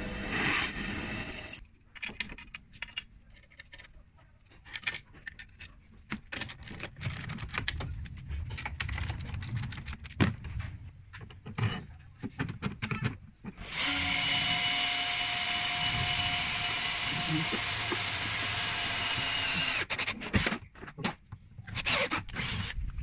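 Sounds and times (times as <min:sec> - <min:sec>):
drill press boring into steel: 0:13.6 - 0:19.9.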